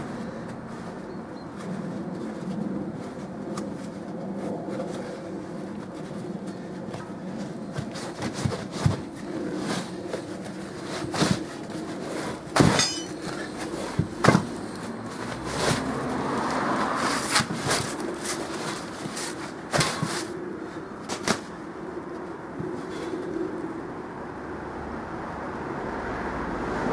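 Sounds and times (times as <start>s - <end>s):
steady low hum: 0.0s - 16.0s
rubber rubbing and rustling: 1.6s - 21.7s
knocks and clunks of tyre: 12.5s - 16.6s.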